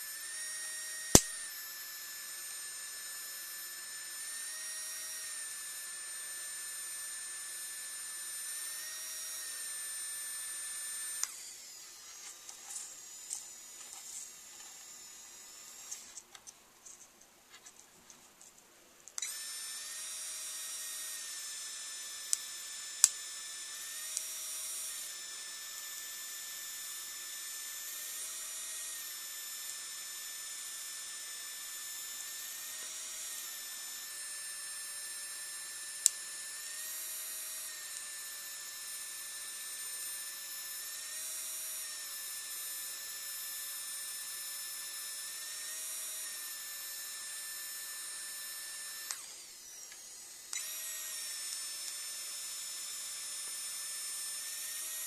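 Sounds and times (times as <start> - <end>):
pen motor whining: 0.0 - 17.0, 19.1 - 55.0
sharp click: 1.1 - 1.4.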